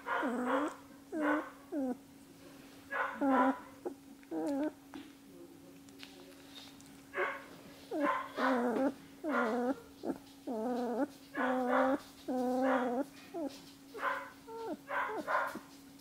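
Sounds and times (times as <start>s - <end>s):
puppy whining: 0.0s - 2.1s, 3.1s - 4.8s, 7.2s - 15.6s
faint steady hum: 0.0s - 16.0s.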